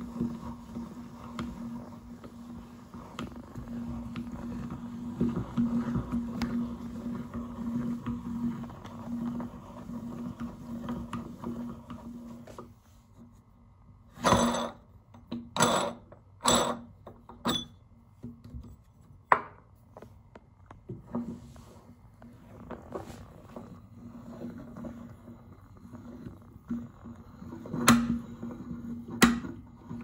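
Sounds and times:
rustling scrapes: 0:21.1 - 0:26.4.

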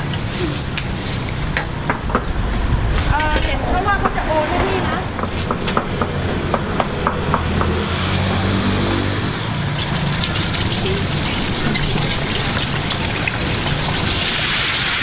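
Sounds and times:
wok frying sizzle: 0:00.0 - 0:03.3, 0:07.3 - 0:15.0
low engine hum: 0:00.0 - 0:14.1.

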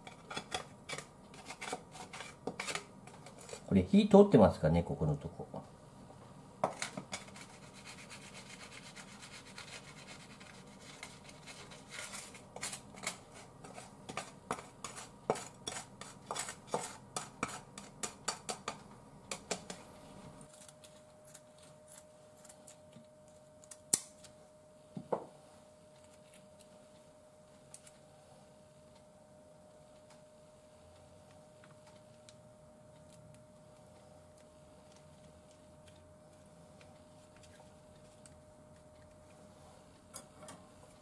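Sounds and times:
faint steady hum: 0:00.0 - 0:41.0
turner scraping a frying pan: 0:11.0 - 0:18.0.

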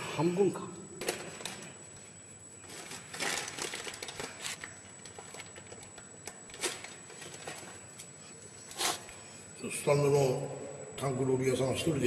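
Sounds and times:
short scraping sounds: 0:08.7 - 0:09.1.

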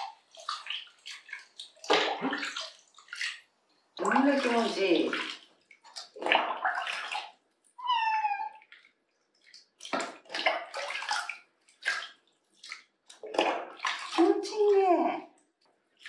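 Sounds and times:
water splashing in plastic tub: 0:00.0 - 0:16.0
cat meowing: 0:07.8 - 0:08.7.

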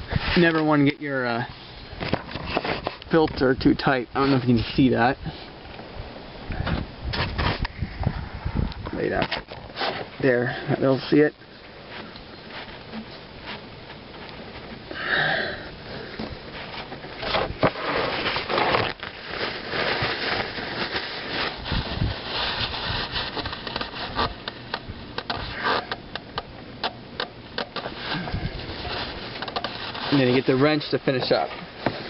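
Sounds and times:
rubbing and scraping: 0:02.0 - 0:03.0, 0:06.7 - 0:07.7, 0:16.2 - 0:26.3, 0:27.6 - 0:32.0.

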